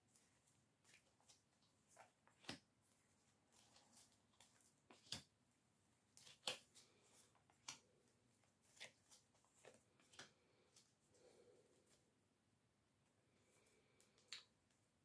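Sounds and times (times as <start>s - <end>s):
cards rustling: 6.1s - 10.9s.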